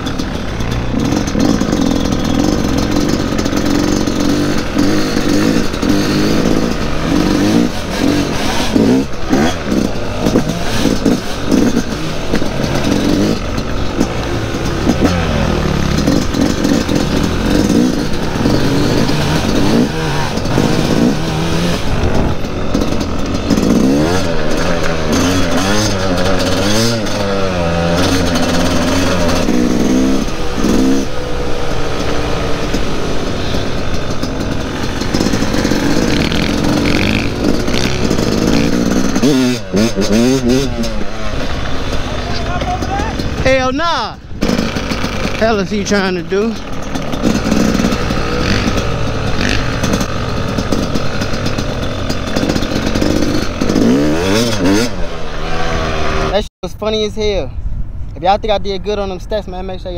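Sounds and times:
dirt bike engine revving: 0.0s - 56.5s.

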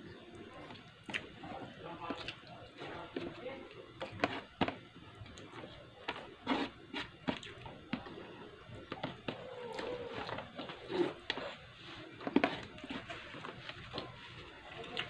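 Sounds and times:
chewing and mouth smacking: 0.3s - 2.9s.

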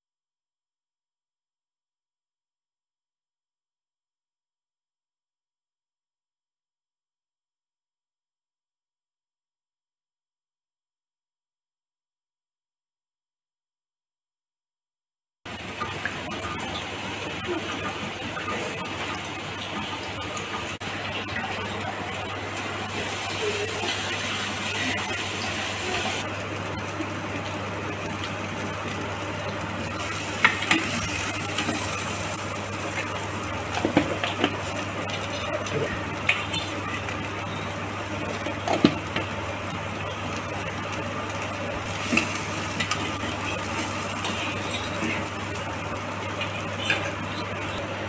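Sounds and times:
vegetables sizzling in a pan: 15.5s - 48.0s.

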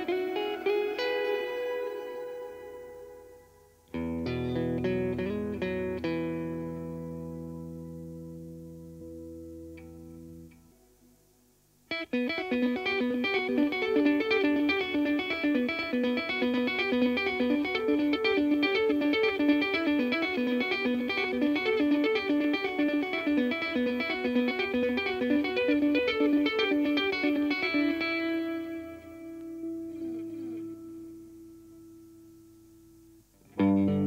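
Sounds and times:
electric guitar with delay echoes: 0.0s - 10.8s, 11.9s - 32.2s, 33.4s - 34.0s.

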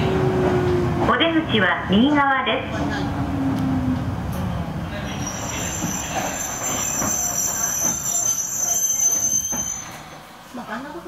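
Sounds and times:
train running noise: 0.0s - 11.0s
high-pitched brake squeal: 5.0s - 10.3s.

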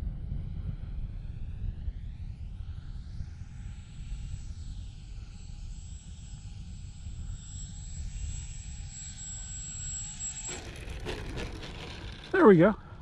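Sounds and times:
model plane propeller whining: 6.0s - 13.0s.

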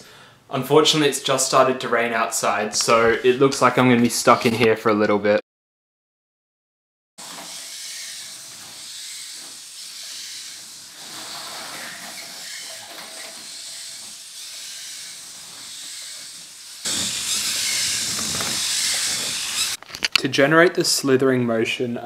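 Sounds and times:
servos whirring and chattering: 7.3s - 19.8s.

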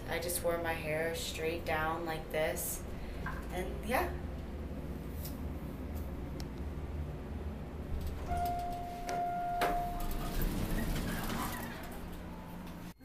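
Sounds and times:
elevator humming: 0.0s - 13.0s
steady electronic beep: 8.3s - 10.3s.

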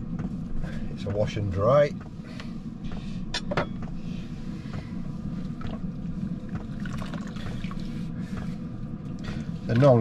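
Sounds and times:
steady low hum: 0.0s - 10.0s
water splashing in a bowl: 6.6s - 7.7s.

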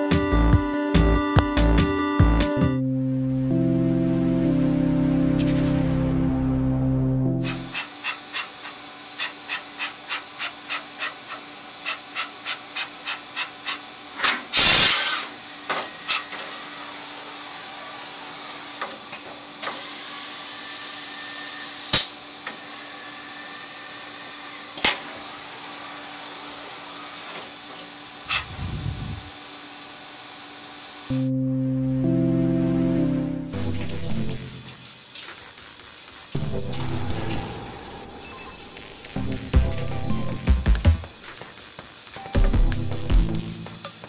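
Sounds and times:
machine humming: 0.0s - 7.8s, 23.6s - 29.6s, 31.1s - 35.1s, 35.9s - 41.4s
air hiss: 7.4s - 30.8s, 34.4s - 42.4s.

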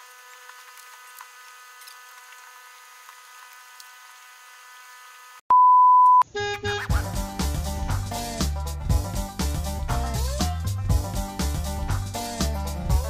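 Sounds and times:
high electronic beep: 5.5s - 6.2s
upbeat background music: 6.3s - 13.0s.

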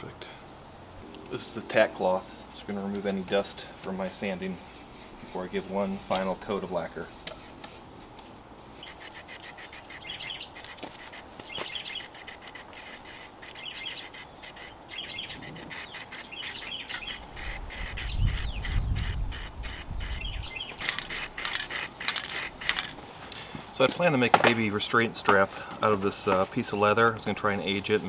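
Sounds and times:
small birds chirping faintly: 8.6s - 21.0s
aerosol can spraying: 8.8s - 23.0s.

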